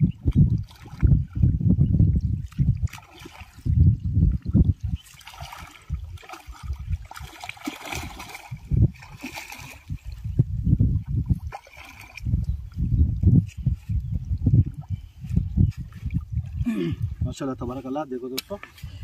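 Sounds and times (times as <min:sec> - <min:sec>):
fish splashing in water: 0:02.6 - 0:03.6, 0:05.0 - 0:10.2.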